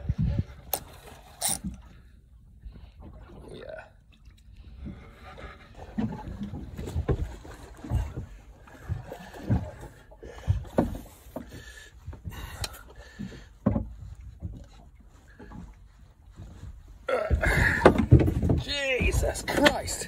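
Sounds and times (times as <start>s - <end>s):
fishing reel knocking and rubbing: 0.8s - 1.8s.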